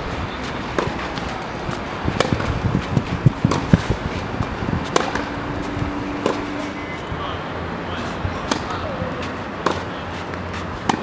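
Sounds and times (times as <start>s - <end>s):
tennis ball struck by racket: 0.5s - 6.8s, 8.0s - 11.0s
ball bouncing: 0.6s - 6.6s.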